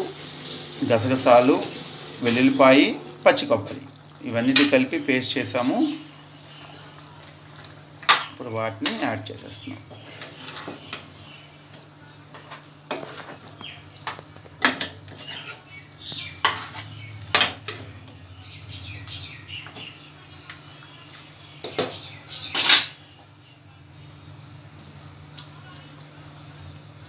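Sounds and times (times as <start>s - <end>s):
spoon scraping and knocking pot: 16.4s - 17.8s.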